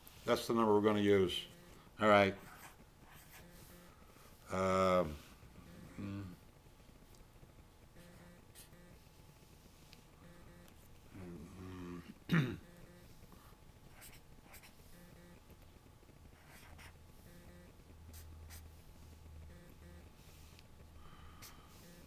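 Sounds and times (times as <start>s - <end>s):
pen scratching on paper: 2.4s - 3.7s, 13.9s - 15.1s, 16.4s - 17.4s.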